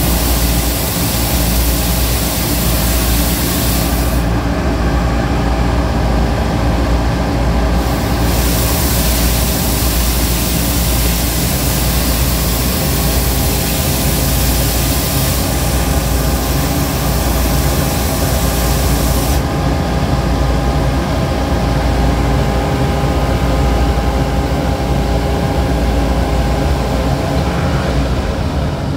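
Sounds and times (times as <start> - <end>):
loud hiss: 0.0 - 4.4, 7.7 - 19.5
street sweeper running: 0.0 - 28.9.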